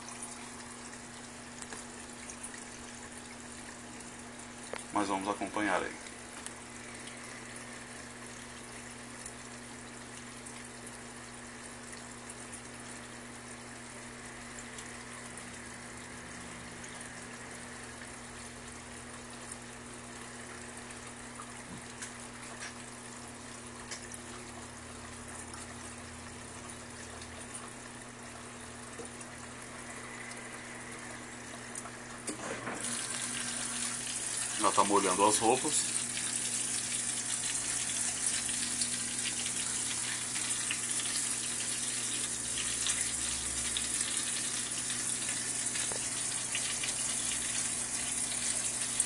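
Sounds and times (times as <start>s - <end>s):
water running into washing machine: 0.0s - 7.2s, 31.6s - 49.0s.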